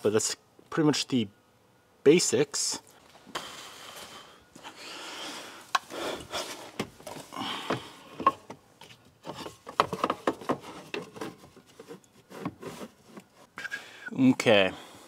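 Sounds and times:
cardboard rustling and scraping: 8.8 - 13.6.

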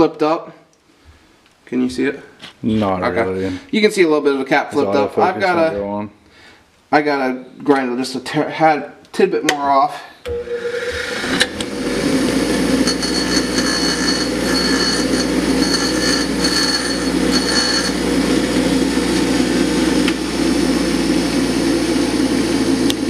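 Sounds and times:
bench grinder motor humming: 10.3 - 23.0
high-pitched metal grinding: 10.6 - 19.6.

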